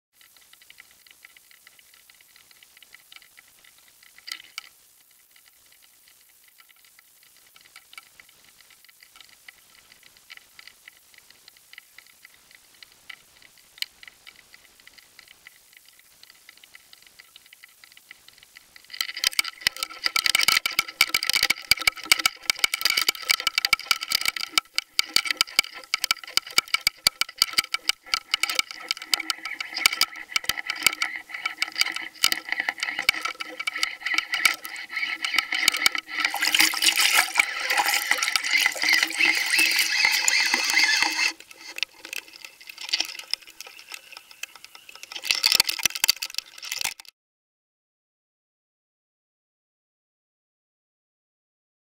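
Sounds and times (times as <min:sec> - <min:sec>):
small clicks and knocks: 0:00.2 - 0:47.1
water rushing over camera: 0:19.3 - 0:47.0
water splashing: 0:28.0 - 0:46.9.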